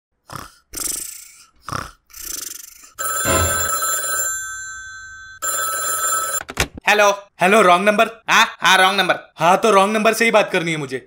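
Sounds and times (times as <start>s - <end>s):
cartoon snoring: 0.2s - 3.0s
old telephone bell ringing: 3.0s - 6.4s.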